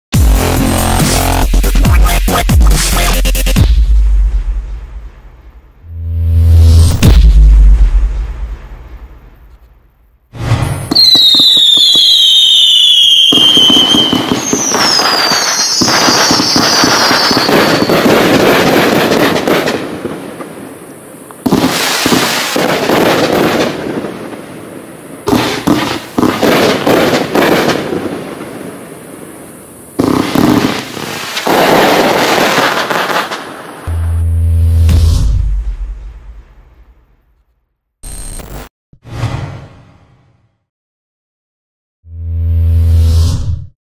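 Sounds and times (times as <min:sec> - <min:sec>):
fireworks launching and bursting: 0:00.2 - 0:37.4
falling firework whistles: 0:10.4 - 0:23.8, 0:24.9 - 0:34.0.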